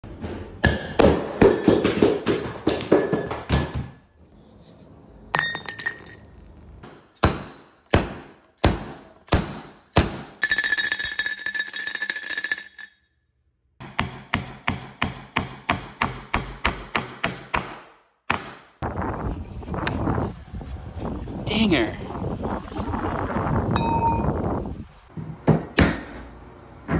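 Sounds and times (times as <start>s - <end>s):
glass ringing: 5.3s - 6.4s, 10.4s - 13.1s, 23.8s - 24.4s.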